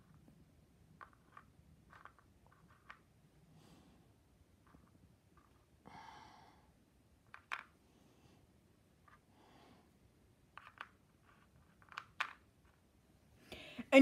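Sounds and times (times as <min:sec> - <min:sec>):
soft breath: 0:03.4 - 0:04.3, 0:05.8 - 0:06.8, 0:07.8 - 0:10.1, 0:13.4 - 0:14.0.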